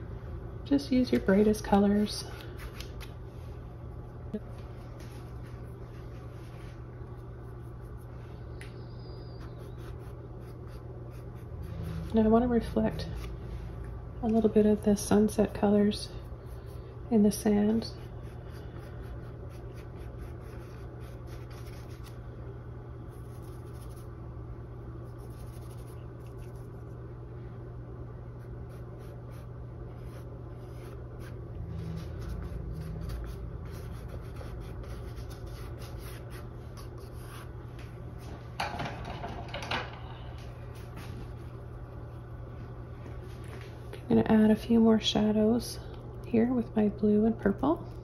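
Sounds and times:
steady low hum: 0:00.0 - 0:48.0
paintbrush scratching on canvas: 0:17.8 - 0:22.1, 0:23.1 - 0:24.1, 0:25.1 - 0:26.8.

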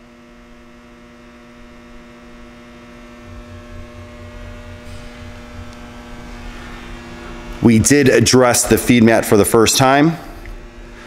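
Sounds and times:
electrical mains hum: 0:00.0 - 0:11.0
low rumble: 0:03.1 - 0:09.0.

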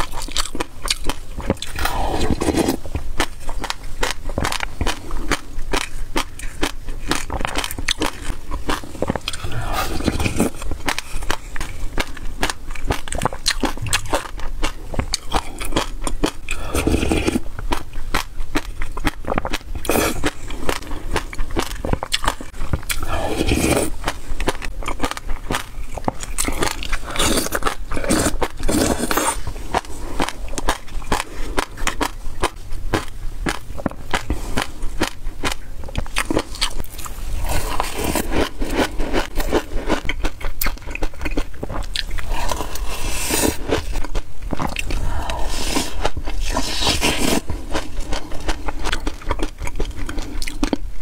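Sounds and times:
chewing crunchy seeds: 0:00.0 - 0:51.0
plastic spoon scraping bowl: 0:01.8 - 0:02.8, 0:23.0 - 0:24.2, 0:26.0 - 0:30.7, 0:44.9 - 0:48.1.

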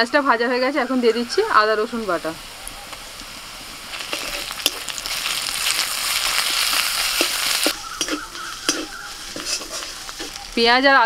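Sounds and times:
onions sizzling in hot oil: 0:00.4 - 0:11.0
metal spatula scraping pan: 0:03.9 - 0:10.6.

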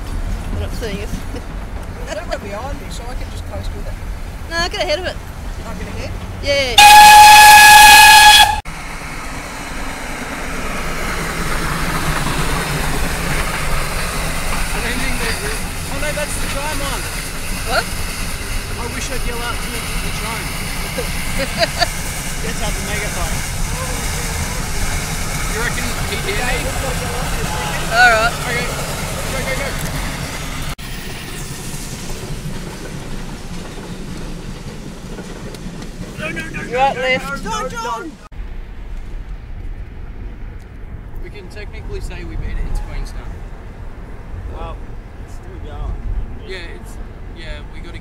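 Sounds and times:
steam locomotive rumble and hiss: 0:00.0 - 0:38.3
train carriages rolling on rails: 0:00.0 - 0:38.3.

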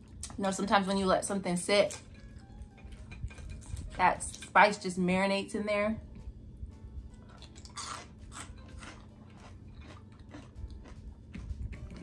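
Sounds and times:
person chewing crunchy food: 0:07.2 - 0:12.0.

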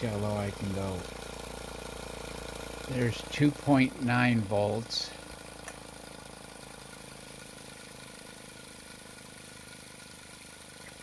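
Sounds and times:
motor humming: 0:00.0 - 0:11.0.

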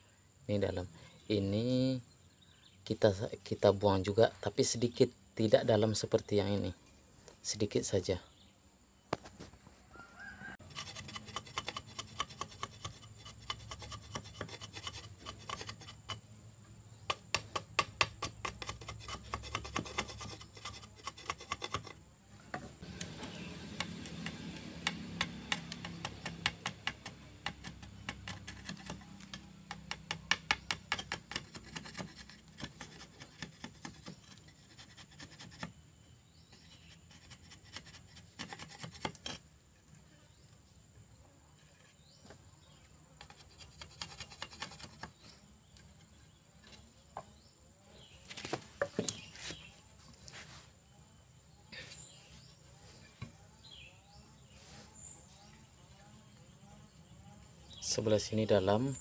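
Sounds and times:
blade scraping wooden stick: 0:10.6 - 0:16.3, 0:17.1 - 0:22.0, 0:22.8 - 0:35.8, 0:36.4 - 0:39.4, 0:43.2 - 0:46.8.

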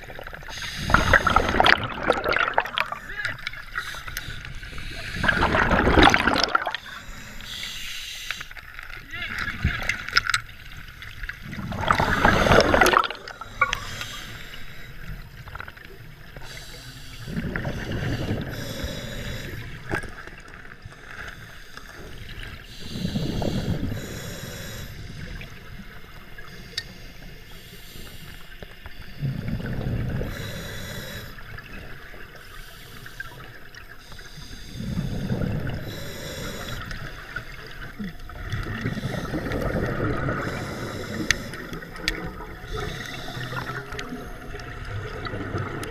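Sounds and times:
exhaled bubbles rushing: 0:00.0 - 0:03.5, 0:05.0 - 0:07.0, 0:11.4 - 0:13.9, 0:37.2 - 0:45.9
regulator hiss on inhale: 0:00.2 - 0:01.8, 0:03.6 - 0:08.9, 0:11.9 - 0:44.7.

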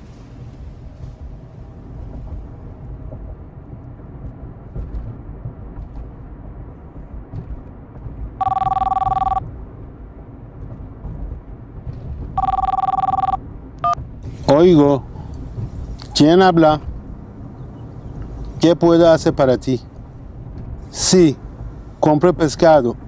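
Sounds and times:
low background rumble: 0:00.0 - 0:23.0
telephone ringing: 0:08.4 - 0:09.4, 0:12.4 - 0:14.0.

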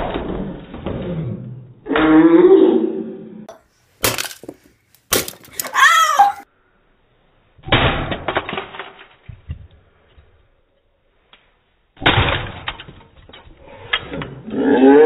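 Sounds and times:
plastic gadget being smashed: 0:04.0 - 0:05.8, 0:07.7 - 0:09.2
brief high-pitched voice: 0:05.6 - 0:06.4.

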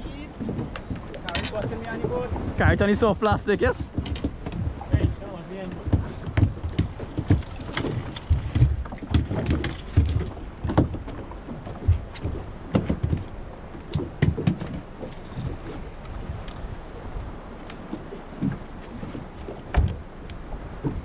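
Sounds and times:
wind buffeting microphone: 0:00.0 - 0:21.0
water slapping against boat hull: 0:00.1 - 0:21.0
sharp knocks and clicks: 0:03.8 - 0:13.3, 0:13.9 - 0:14.9.

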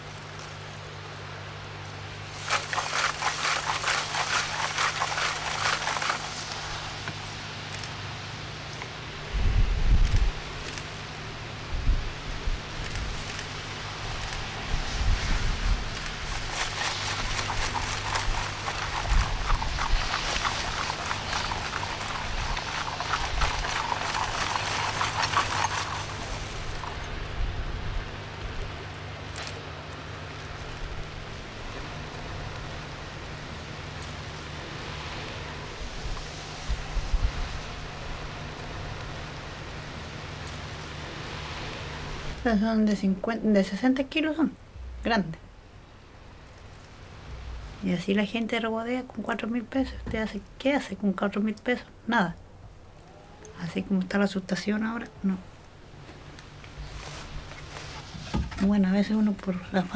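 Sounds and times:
charcoal clattering into sack: 0:02.3 - 0:06.6, 0:15.9 - 0:27.1.

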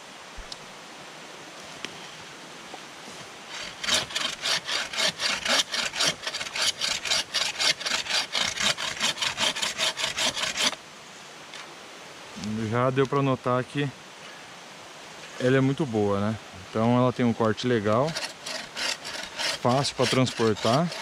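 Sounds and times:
bow saw cutting log: 0:03.5 - 0:10.8, 0:17.9 - 0:21.0.

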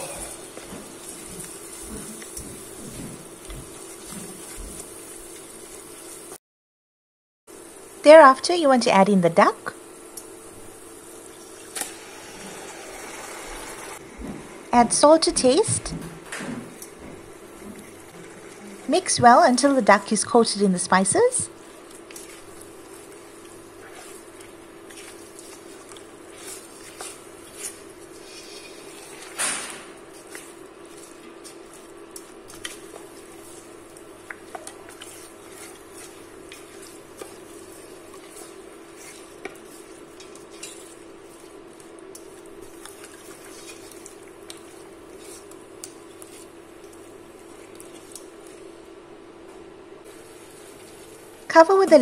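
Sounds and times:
wooden spoon scraping a metal pot: 0:26.3 - 0:29.3, 0:42.9 - 0:45.6.

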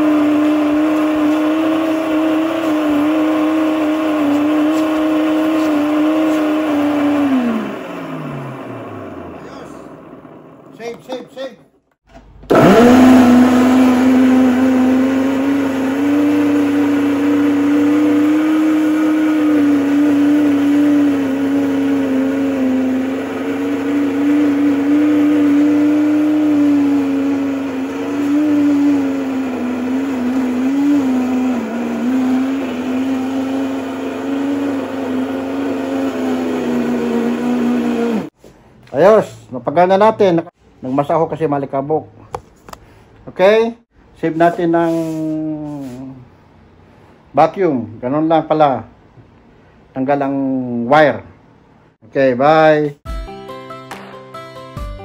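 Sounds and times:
vacuum motor whining: 0:00.0 - 0:11.2, 0:12.2 - 0:38.4.

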